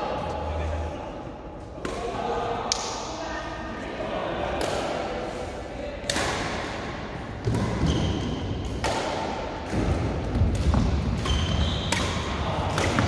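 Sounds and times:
court shoes squeaking: 7.4s - 8.8s, 9.8s - 13.0s
rackets smacking shuttlecock: 7.4s - 13.0s.

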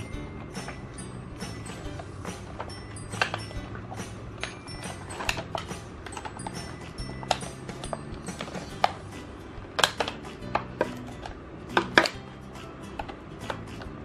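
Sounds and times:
soft background music: 0.0s - 14.0s
plastic snapping: 9.7s - 12.3s
stiff plastic crackling: 9.7s - 14.0s
scissors snipping plastic: 9.8s - 12.2s.

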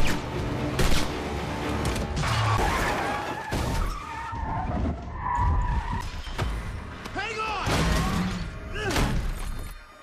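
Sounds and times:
film score music: 0.0s - 10.0s
car tyres squealing: 2.2s - 6.5s.

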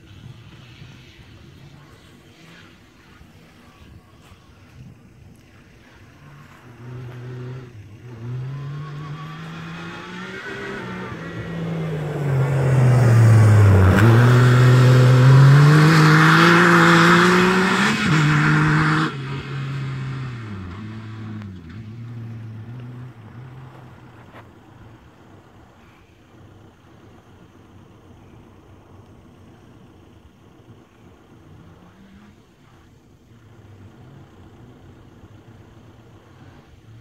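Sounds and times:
engine revving as it drives past: 5.4s - 26.1s, 30.7s - 37.0s.

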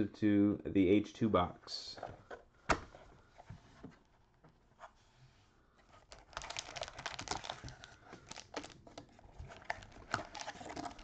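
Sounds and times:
card packs crinkling: 6.0s - 11.0s.

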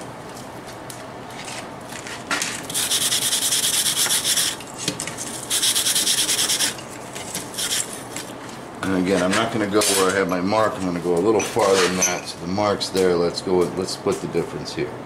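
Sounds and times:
wire brush scrubbing metal: 2.7s - 4.6s, 5.4s - 6.8s, 7.5s - 8.0s.

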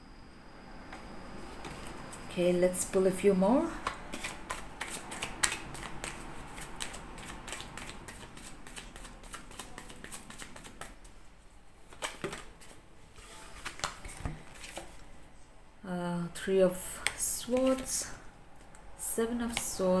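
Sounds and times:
cards being shuffled: 3.7s - 11.2s, 11.9s - 15.0s.

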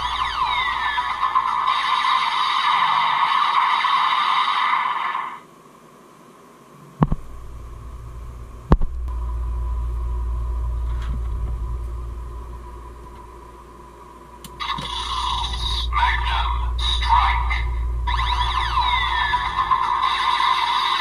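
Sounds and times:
electronic toy sound effect: 0.0s - 5.4s, 14.6s - 21.0s
low rumble of toy handling: 7.0s - 13.6s.

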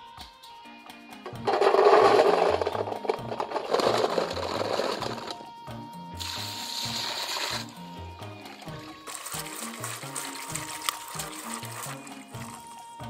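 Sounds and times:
mushrooms rattling into metal basin: 1.3s - 5.5s
steady hiss: 6.2s - 7.7s.

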